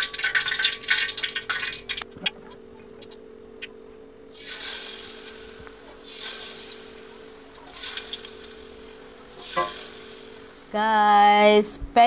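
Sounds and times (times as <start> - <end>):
batter sizzling in hot oil: 0.0 - 2.1, 4.3 - 11.3
steady low hum: 0.0 - 12.0.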